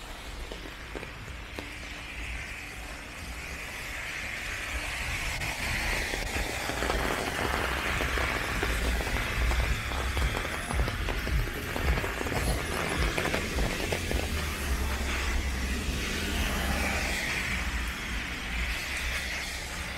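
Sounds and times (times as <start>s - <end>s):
raindrops ticking on umbrella: 0.0s - 2.5s, 4.8s - 15.4s
rain hissing on wet pavement: 0.0s - 19.9s.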